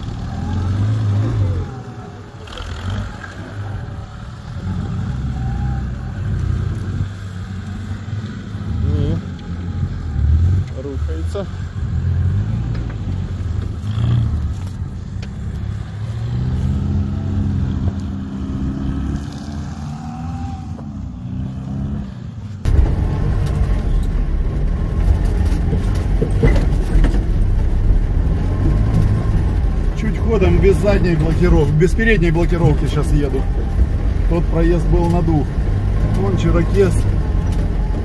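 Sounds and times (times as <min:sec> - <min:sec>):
off-road vehicle engine revving: 0:00.0 - 0:38.0.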